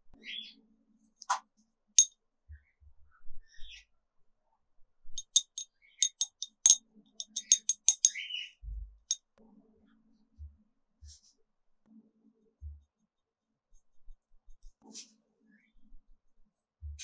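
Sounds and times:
sharp clicks with glassy ring: 0:05.2 - 0:08.2.

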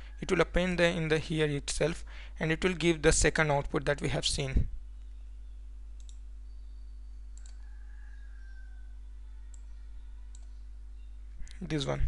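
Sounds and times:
low electrical hum: 0:00.0 - 0:12.0
computer mouse clicks: 0:06.0 - 0:06.2, 0:07.3 - 0:07.7, 0:09.5 - 0:10.6.

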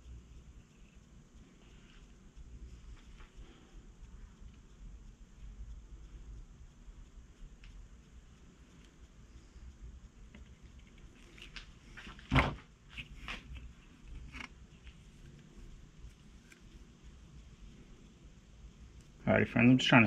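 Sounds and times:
light clicks and taps: 0:00.0 - 0:18.1.

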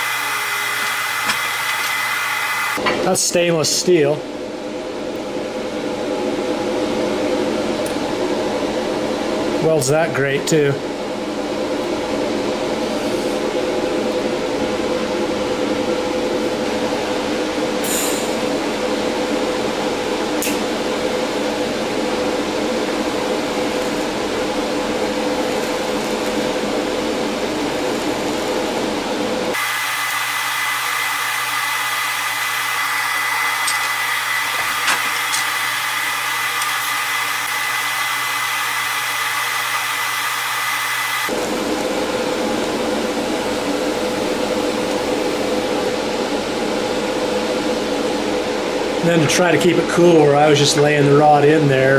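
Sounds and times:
welding arc hissing: 0:00.0 - 0:02.8, 0:29.5 - 0:41.3
high steady whine: 0:00.0 - 0:51.9.

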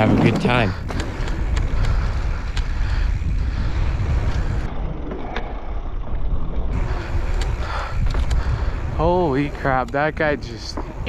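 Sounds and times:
bike tyre noise on dirt: 0:00.0 - 0:11.0
wind rumble on microphone: 0:00.0 - 0:11.0
light bike clicks: 0:00.9 - 0:05.5, 0:06.6 - 0:08.8, 0:09.6 - 0:11.0.

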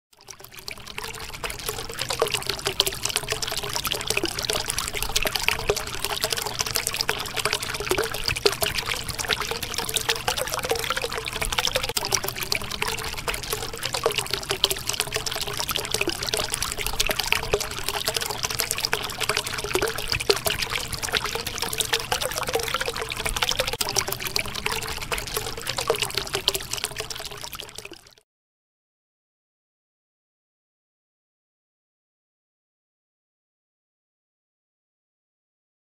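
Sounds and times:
water trickling and babbling: 0:00.2 - 0:28.2.

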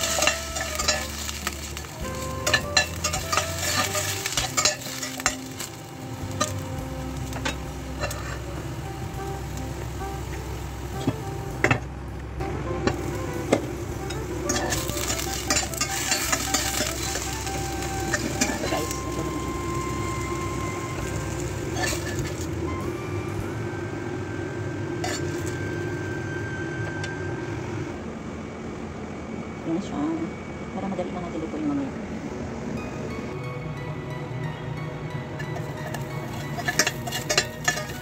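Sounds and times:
metal spatula scraping a pan: 0:00.0 - 0:05.7, 0:07.2 - 0:08.6, 0:14.5 - 0:18.9, 0:21.0 - 0:22.5, 0:35.4 - 0:38.0
potatoes sizzling in a pan: 0:00.0 - 0:11.0, 0:12.9 - 0:22.7, 0:35.6 - 0:38.0.

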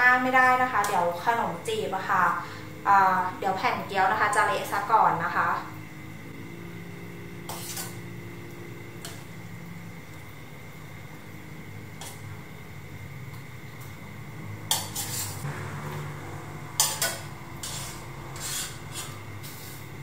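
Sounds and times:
metal ladle scraping a pot: 0:07.4 - 0:08.0, 0:14.7 - 0:15.5, 0:16.7 - 0:19.8.

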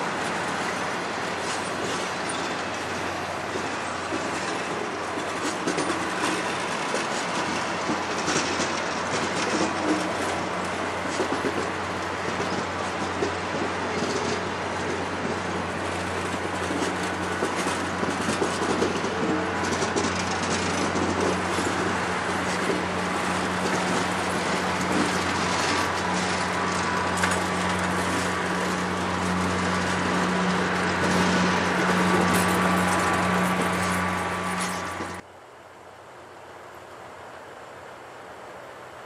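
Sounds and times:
train wheels rumbling on rails: 0:00.0 - 0:35.3
clicks over rail joints: 0:00.2 - 0:35.2.

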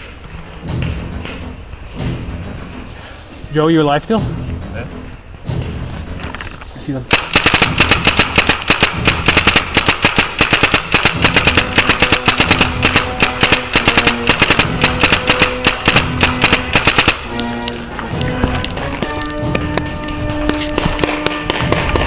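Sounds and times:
background music: 0:00.0 - 0:22.0
paintball marker rapid firing: 0:07.1 - 0:17.4, 0:19.0 - 0:22.0.

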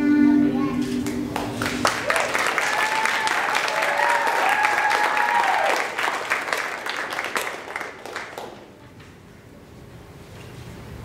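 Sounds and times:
audience applauding: 0:01.0 - 0:08.8
voices cheering: 0:01.9 - 0:06.3.

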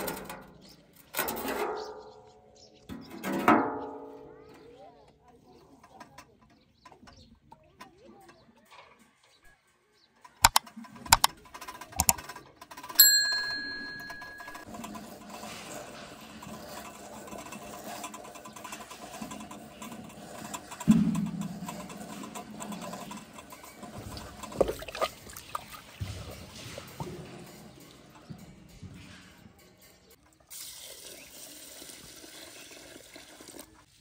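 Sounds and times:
metallic ring: 0:13.0 - 0:14.8.

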